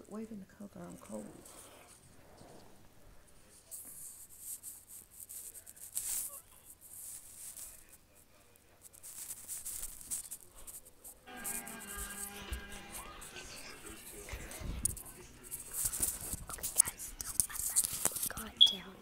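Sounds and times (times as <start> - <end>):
blanket rustling against phone: 3.5 - 8.1, 8.8 - 18.5.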